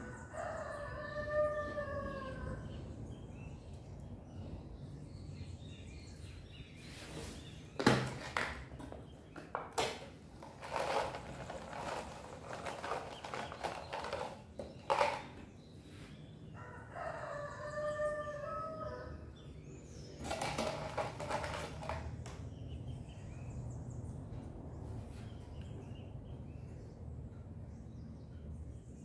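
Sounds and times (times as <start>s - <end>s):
rooster crowing: 0.0s - 2.8s, 16.6s - 19.3s
handling knocks and rustling: 7.0s - 15.5s.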